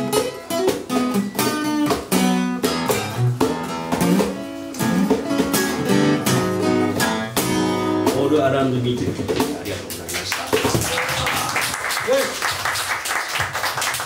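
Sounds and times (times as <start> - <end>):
acoustic guitar chords: 0.0 - 9.6.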